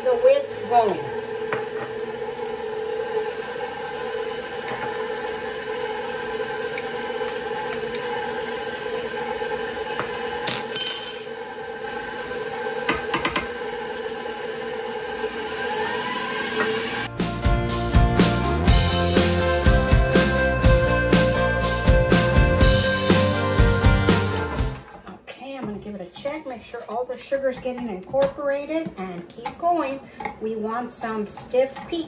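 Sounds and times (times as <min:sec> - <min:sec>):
stand mixer motor whine: 0:00.0 - 0:10.5, 0:11.4 - 0:17.1
music: 0:17.1 - 0:24.9.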